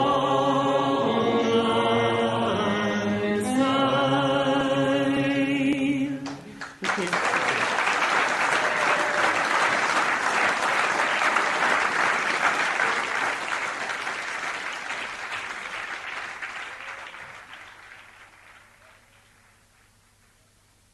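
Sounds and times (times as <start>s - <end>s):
audience applauding: 6.2s - 20.4s.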